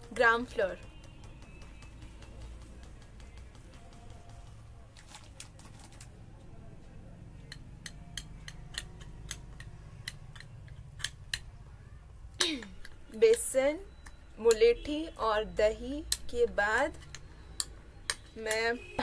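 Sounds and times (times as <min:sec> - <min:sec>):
spoon clicking against bowl: 0:07.4 - 0:11.5, 0:16.9 - 0:18.2.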